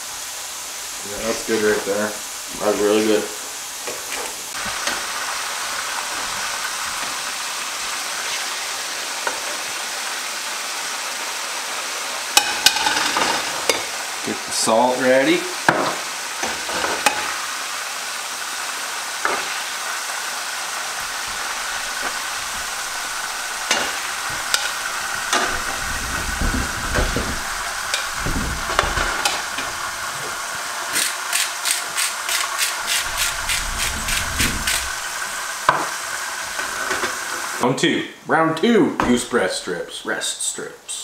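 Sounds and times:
food sizzling in frying pan: 0.0s - 37.6s
spatula scraping pan: 15.8s - 17.5s, 19.2s - 20.0s, 20.6s - 30.4s, 31.9s - 37.6s
dull knocks: 22.0s - 29.8s
salt grinder clicking: 31.0s - 33.9s.

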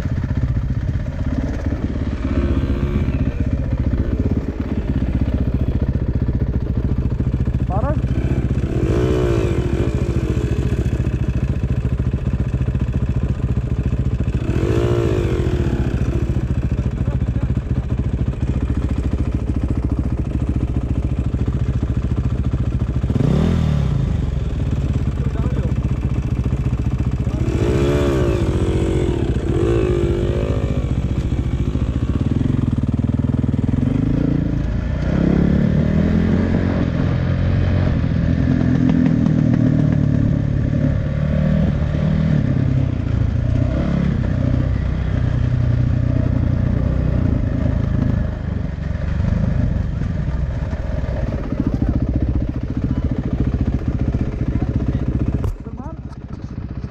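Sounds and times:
motorcycle two-stroke engine running: 0.0s - 56.9s.

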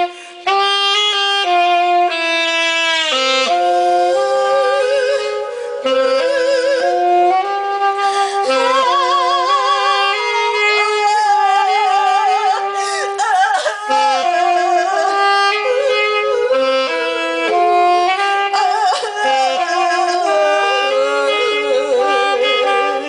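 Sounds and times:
saxophone holding notes: 0.0s - 23.0s
woman singing with vibrato: 3.6s - 23.0s.

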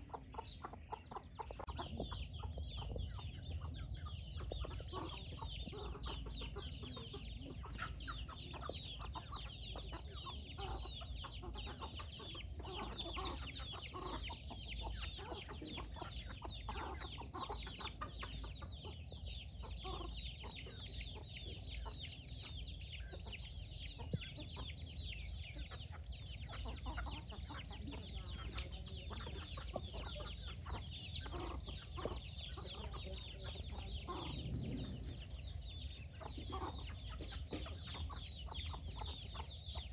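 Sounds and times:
chicks peeping: 0.0s - 39.9s
hens clucking: 0.0s - 39.9s
low rumble: 33.6s - 36.4s.

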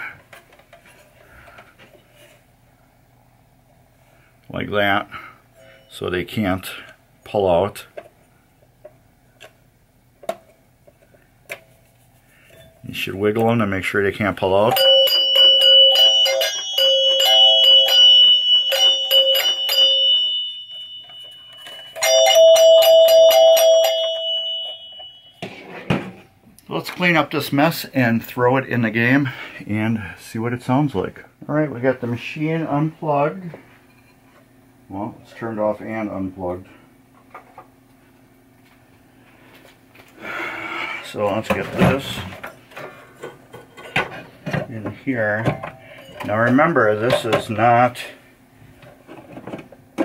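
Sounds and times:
low room hum: 0.0s - 50.0s
metal chime bars clinking and ringing: 14.7s - 25.4s.

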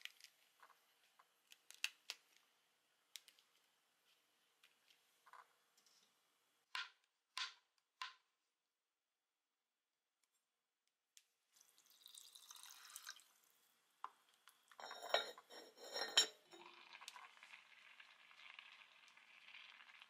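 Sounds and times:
rice boiling in pot: 11.5s - 20.0s
metal pot lid clanking: 14.8s - 16.6s.

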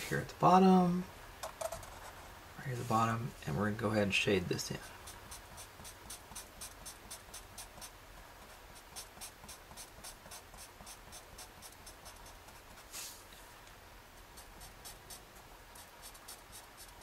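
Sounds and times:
marker scratching on paper: 4.8s - 13.2s, 14.1s - 17.0s.

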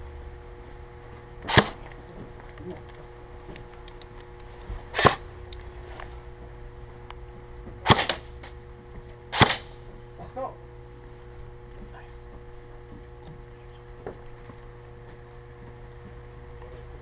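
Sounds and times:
airsoft rifle shots: 1.4s - 1.8s, 4.9s - 5.2s, 7.8s - 8.3s, 9.3s - 9.8s.

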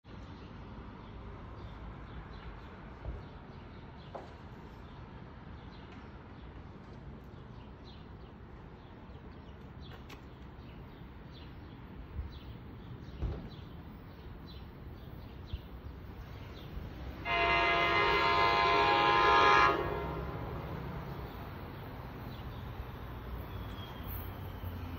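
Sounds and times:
bird chirping: 21.1s - 24.9s.

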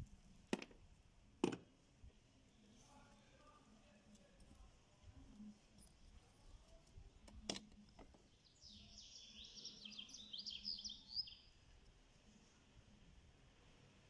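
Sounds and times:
small bird chirping: 8.2s - 11.6s.

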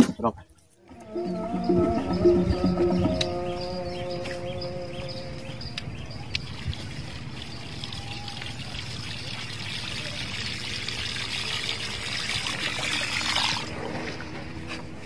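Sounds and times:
water trickling and splashing: 5.2s - 15.0s.

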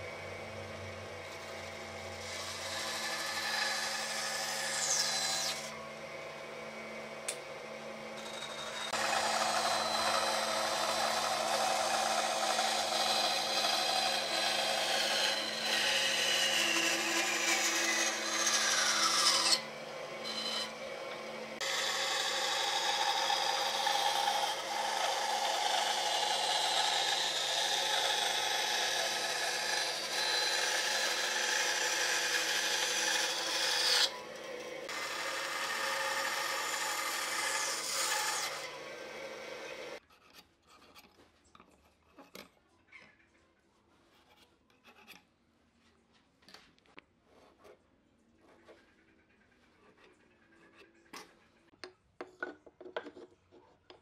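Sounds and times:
motor humming: 0.0s - 40.0s
bandsaw cutting wood: 1.1s - 40.0s.

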